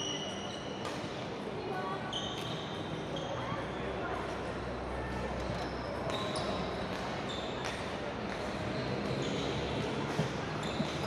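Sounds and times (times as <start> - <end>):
shoes squeaking on wooden court: 0.0 - 1.1, 2.0 - 3.8, 5.4 - 11.0
echoing sports hall ambience: 0.0 - 11.0.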